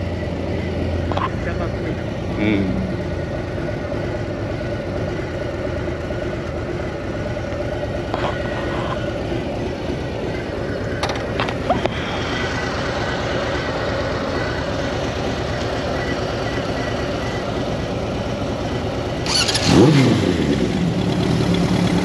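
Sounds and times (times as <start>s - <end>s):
motorcycle engine idling low: 0.0s - 22.0s.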